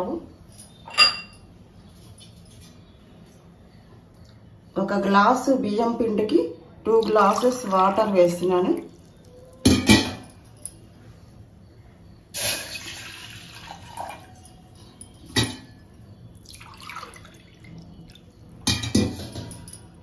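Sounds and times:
water pouring into metal pot: 12.6 - 14.3, 16.4 - 18.3.

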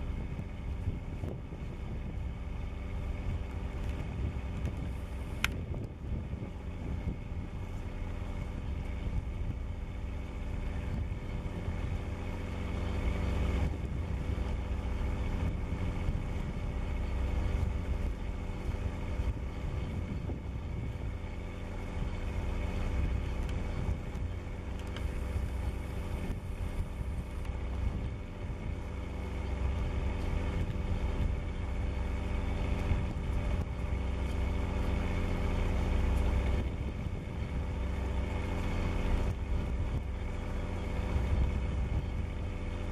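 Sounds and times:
ship engine low rumble: 0.0 - 42.9.

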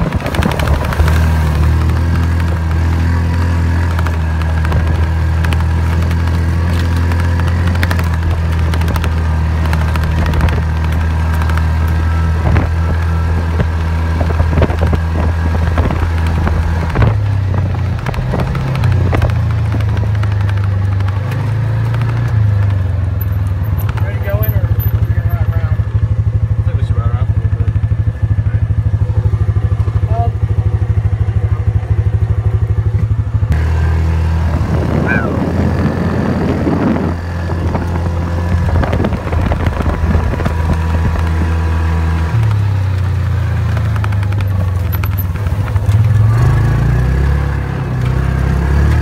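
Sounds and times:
vehicle knocks and rattles: 0.0 - 25.9, 37.4 - 49.0
vehicle engine running: 0.0 - 49.0.

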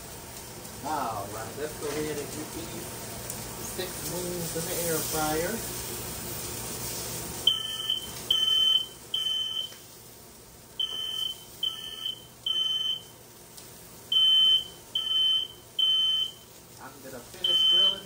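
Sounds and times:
smoke alarm beeping: 7.4 - 9.8, 10.8 - 13.2, 14.1 - 16.5, 17.4 - 18.0.

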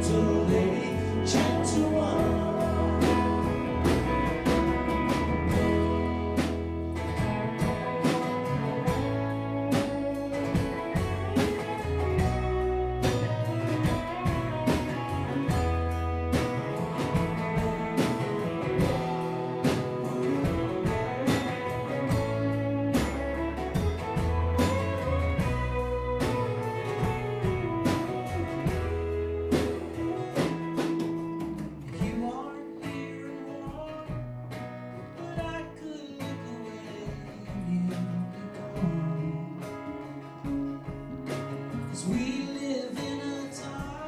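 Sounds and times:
man singing: 0.0 - 5.6, 31.8 - 34.3, 35.1 - 40.6, 41.9 - 44.0
live band playing: 0.0 - 44.0.

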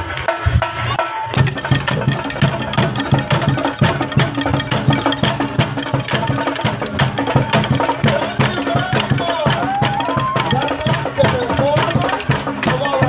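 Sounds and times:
sticks beating bamboo tubes: 1.3 - 13.0.

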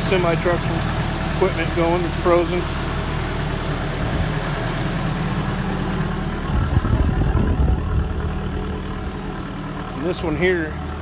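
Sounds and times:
diesel engine humming: 0.0 - 11.0
low rumble: 3.1 - 11.0.

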